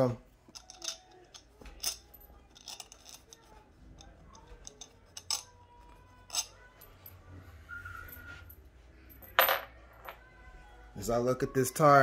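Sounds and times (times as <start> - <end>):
metal screws clicking and clinking: 0.5 - 7.2.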